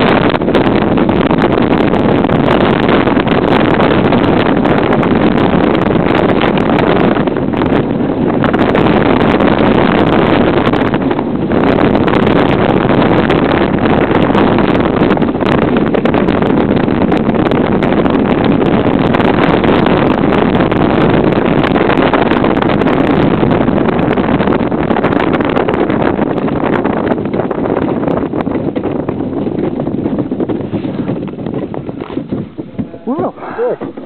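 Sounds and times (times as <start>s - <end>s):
sled runners rumbling on ice: 0.0s - 34.0s
wind on the microphone: 0.0s - 34.0s
small clicks from the sled: 29.1s - 32.4s.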